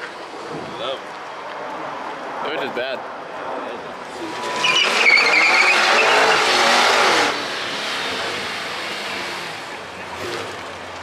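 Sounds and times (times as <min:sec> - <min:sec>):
tyres squealing on asphalt: 0:04.0 - 0:10.7
car engine revving hard: 0:04.2 - 0:10.6.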